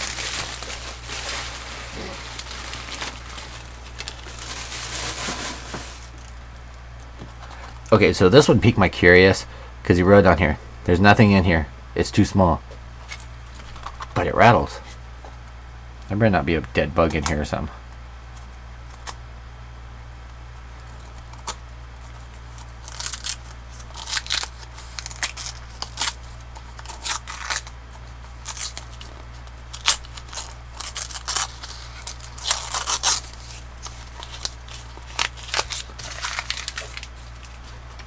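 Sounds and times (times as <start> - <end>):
gift wrap paper tearing and crumpling: 0.0 - 6.2, 22.4 - 37.8.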